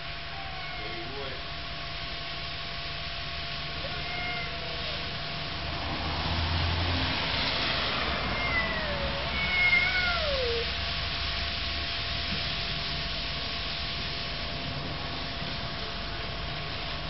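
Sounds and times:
cats yowling: 0.0s - 1.4s, 3.7s - 5.4s, 7.5s - 10.8s.

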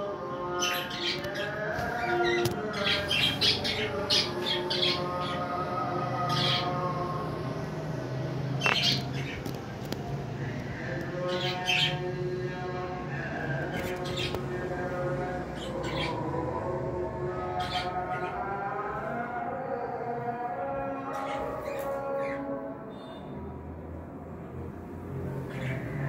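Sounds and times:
cockatiels chirping and squawking: 8.6s - 9.5s, 15.8s - 16.2s.

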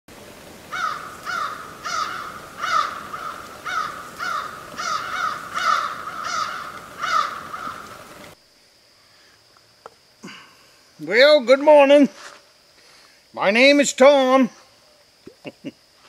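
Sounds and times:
crow cawing: 0.7s - 8.2s.

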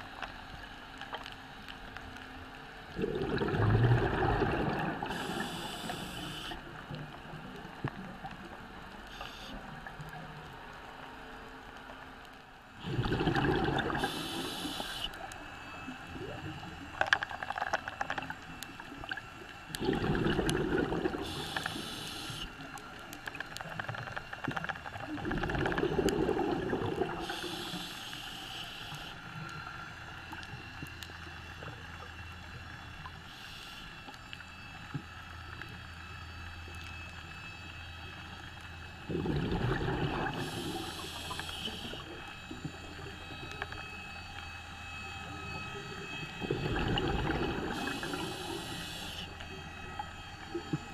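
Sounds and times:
exhaled bubbles underwater: 2.9s - 8.7s, 12.8s - 15.1s, 16.1s - 17.1s, 18.1s - 23.0s, 23.8s - 27.9s, 39.0s - 43.6s, 45.4s - 49.2s
regulator high hiss: 5.0s - 6.6s, 14.0s - 15.2s, 21.2s - 22.5s, 27.2s - 29.2s, 47.8s - 49.3s.

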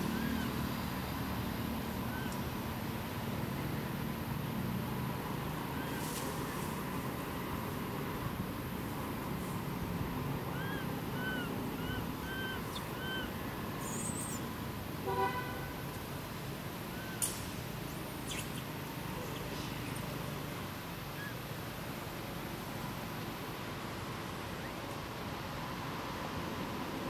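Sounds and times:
chirping calls: 10.5s - 14.5s
horn-like honk: 15.0s - 15.8s.

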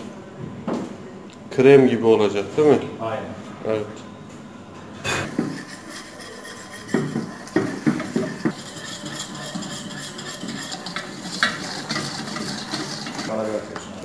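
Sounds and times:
flour sizzling: 5.2s - 14.0s
whisk scraping metal pot: 5.2s - 14.0s.

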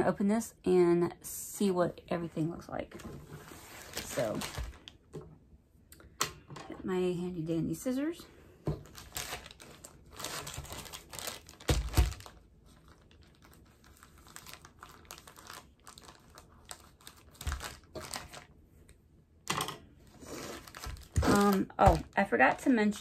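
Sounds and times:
plastic bag crinkling: 3.6s - 5.0s, 8.8s - 18.6s, 20.2s - 22.7s.

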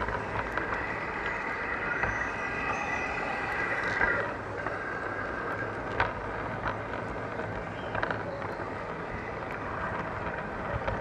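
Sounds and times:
model train motor whine: 0.0s - 6.4s
wheels clicking over rail joints: 0.0s - 11.0s.

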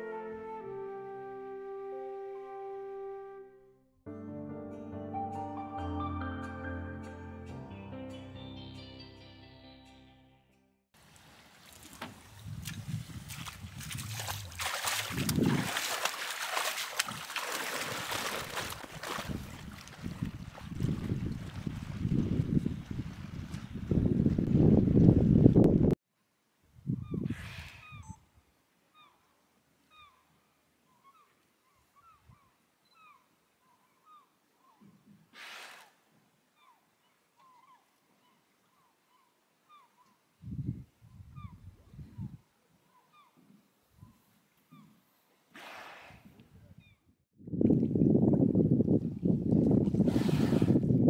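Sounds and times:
wind rumble on microphone: 12.1s - 15.8s, 18.6s - 26.0s, 26.7s - 28.3s, 40.4s - 42.4s, 46.2s - 51.0s
river water rushing and splashing: 14.0s - 19.3s.

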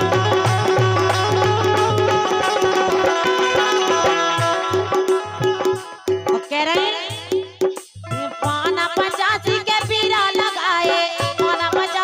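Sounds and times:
hand drum strokes: 0.0s - 6.6s
harmonium: 0.0s - 12.0s
woman singing: 6.3s - 12.0s.

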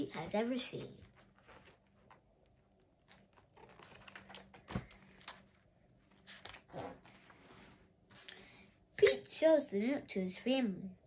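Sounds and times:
book pages rustling: 0.4s - 8.4s.

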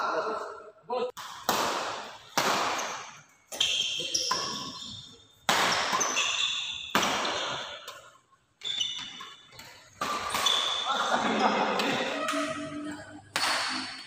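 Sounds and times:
racket striking shuttlecock: 1.2s - 4.7s, 5.5s - 8.2s, 9.0s - 10.8s, 13.3s - 14.0s
sneakers squeaking on court: 2.8s - 11.1s.

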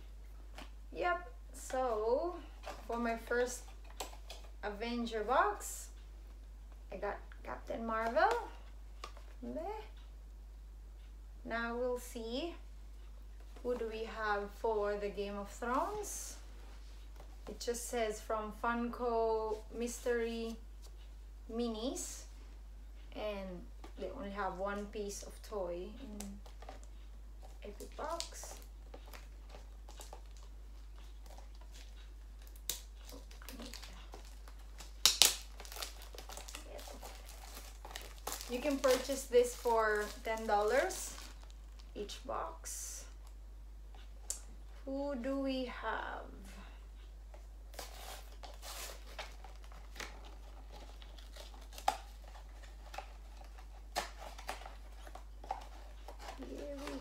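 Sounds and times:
cardboard box rustling and crinkling: 35.6s - 41.5s.

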